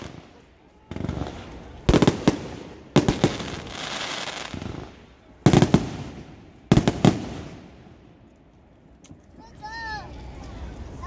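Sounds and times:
fireworks hiss: 0.0s - 7.9s
fireworks cracking: 0.0s - 8.2s.

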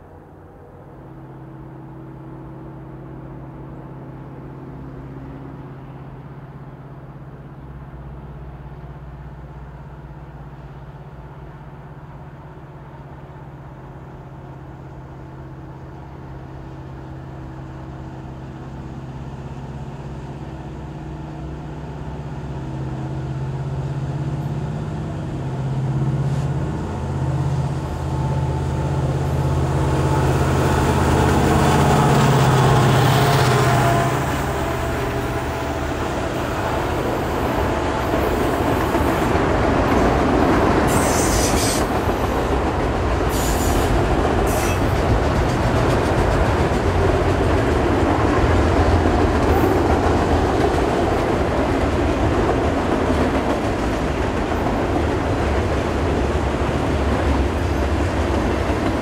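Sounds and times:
freight train diesel engines drone: 0.0s - 59.0s.

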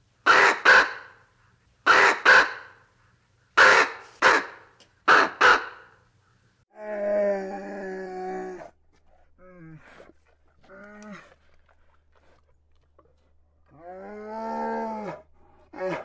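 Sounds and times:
ravens cawing: 3.6s - 6.0s.

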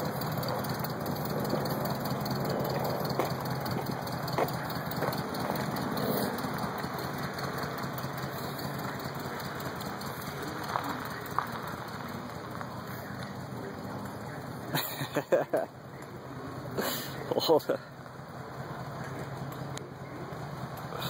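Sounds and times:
tyres on gravel: 0.0s - 16.2s
vehicle engine running: 0.0s - 21.0s.

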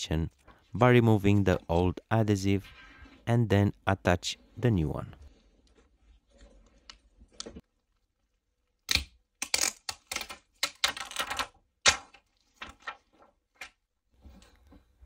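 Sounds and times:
plastic liner crinkling: 5.6s - 13.9s.

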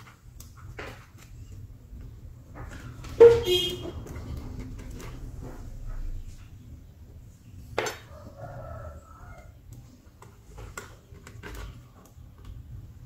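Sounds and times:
rooster crowing: 8.0s - 9.6s.

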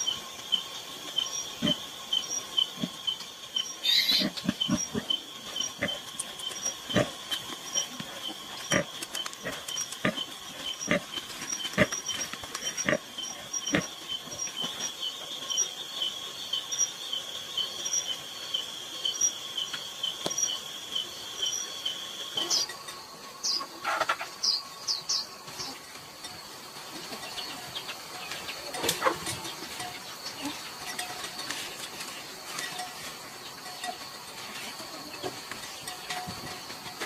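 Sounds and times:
night insects chirping: 0.0s - 37.0s
pig grunting: 4.1s - 14.0s.

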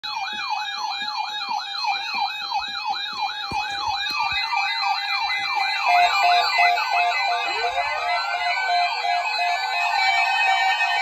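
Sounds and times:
electronic siren wailing: 0.0s - 11.0s.

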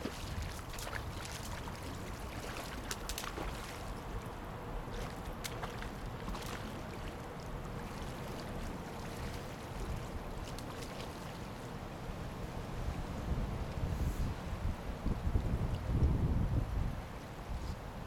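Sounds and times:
wind buffeting microphone: 0.0s - 11.4s, 12.1s - 18.0s
river flowing: 0.0s - 13.5s.

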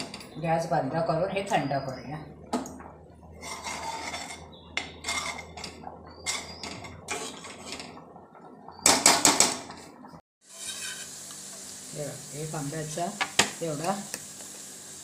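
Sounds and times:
spoon scraping and clinking in pot: 3.4s - 8.0s, 10.5s - 11.2s.

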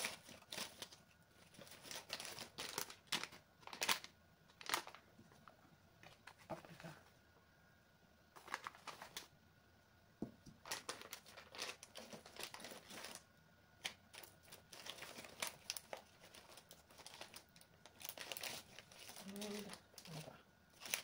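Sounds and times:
faint crinkling and light clicks: 0.0s - 6.8s, 10.4s - 21.0s.

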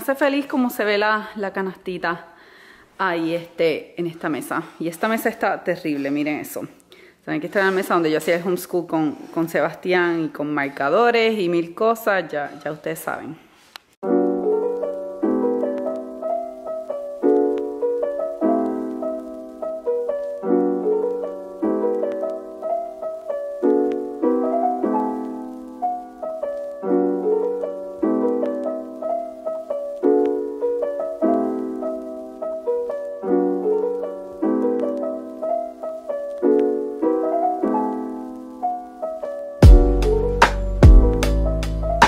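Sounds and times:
soft piano music: 14.0s - 42.0s.

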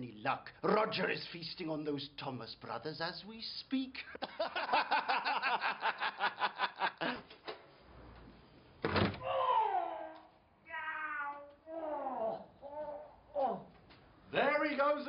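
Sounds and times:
men laughing loudly: 4.2s - 7.3s
door banging open: 8.8s - 9.2s
drawn-out falling cry: 9.2s - 12.8s.

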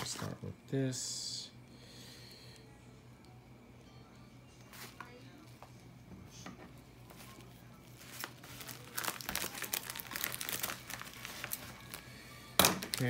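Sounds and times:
mailer wrapping crinkling: 7.1s - 12.0s, 12.8s - 13.0s.

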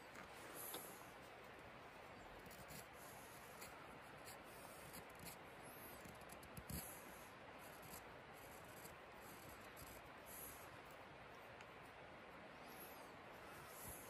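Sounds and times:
steady hiss: 0.0s - 14.0s
knife scraping dry wood: 2.4s - 7.1s.

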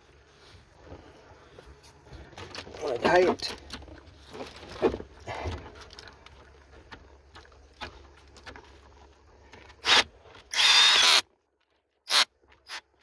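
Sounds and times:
cordless drill whining: 9.8s - 11.2s, 12.1s - 12.8s.

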